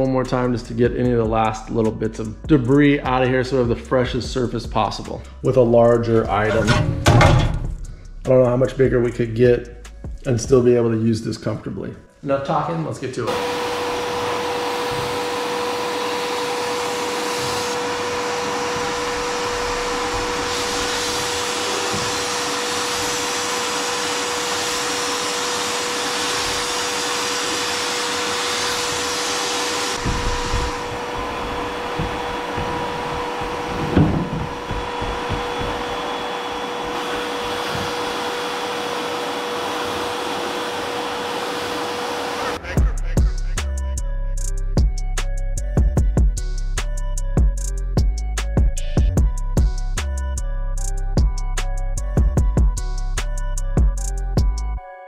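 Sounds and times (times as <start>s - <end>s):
vacuum motor hum: 13.3s - 42.6s
compressed air blast hissing: 16.6s - 38.5s
knock: 30.0s - 36.0s.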